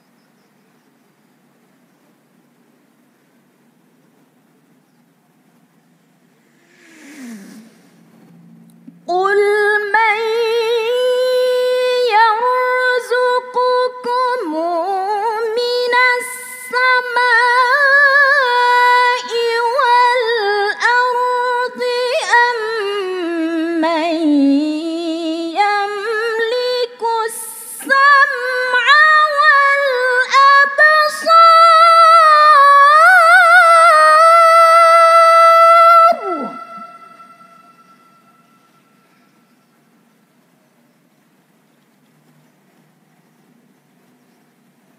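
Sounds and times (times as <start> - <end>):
woman reciting melodically: 9.0 - 38.4.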